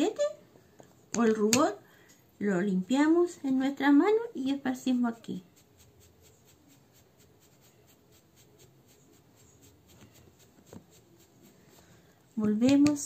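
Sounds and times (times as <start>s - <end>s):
brush scratching on fabric: 4.8s - 12.0s.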